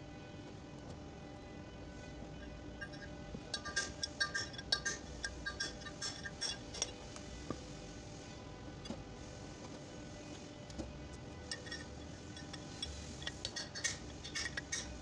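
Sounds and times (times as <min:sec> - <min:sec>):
metal rod clinking: 0:02.8 - 0:07.0, 0:11.5 - 0:14.9.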